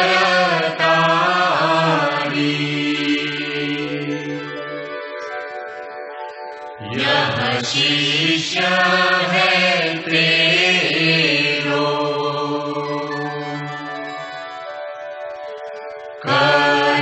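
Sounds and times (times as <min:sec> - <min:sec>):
devotional chant singing: 0:00.0 - 0:05.0, 0:06.8 - 0:14.2, 0:16.2 - 0:17.0.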